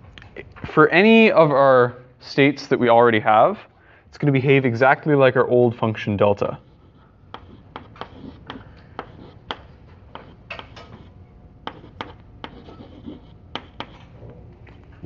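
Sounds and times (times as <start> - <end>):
chalk tapping and scratching: 6.4 - 14.2.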